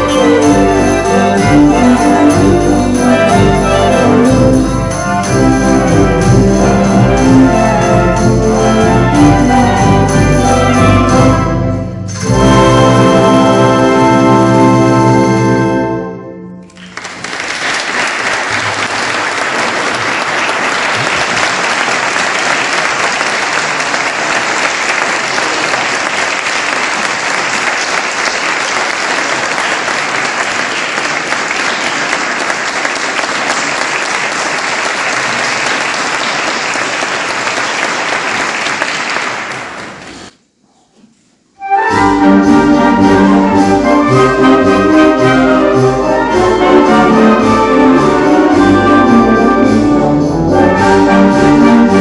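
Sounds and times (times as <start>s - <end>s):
music: 0.0s - 17.0s, 41.6s - 52.0s
audience applauding: 16.6s - 40.3s.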